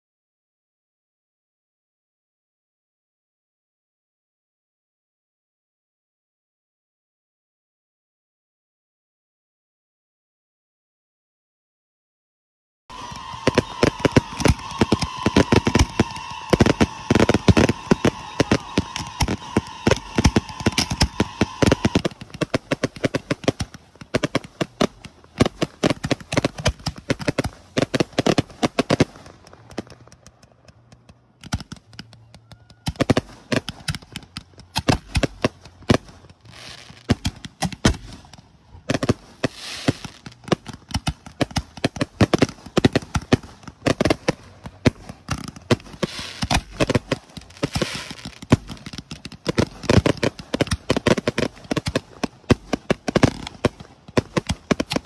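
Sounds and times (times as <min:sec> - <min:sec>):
fireworks crackling and banging: 0:12.9 - 0:55.0.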